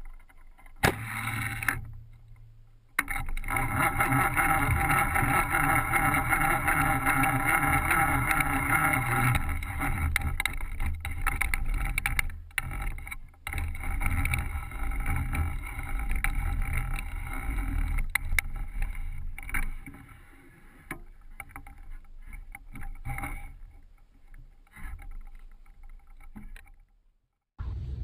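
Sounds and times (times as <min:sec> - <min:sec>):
wind rumble on microphone: 0:27.6 - 0:28.0.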